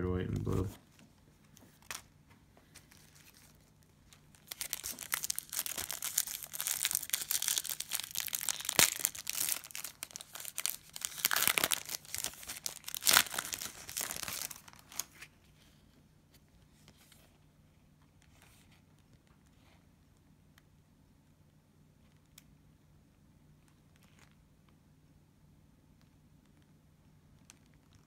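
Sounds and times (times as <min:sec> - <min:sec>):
cellophane crinkling and tearing: 0:02.7 - 0:15.4.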